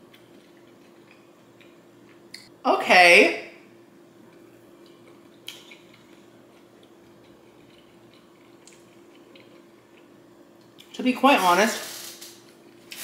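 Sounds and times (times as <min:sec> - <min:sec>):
chewing and wet mouth sounds: 0:00.0 - 0:02.5, 0:04.2 - 0:11.0
steady low hum: 0:00.0 - 0:13.0.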